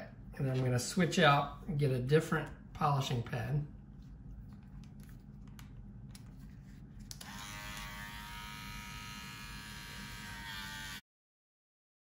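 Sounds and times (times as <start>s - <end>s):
rotary tool motor whine: 7.2s - 11.0s.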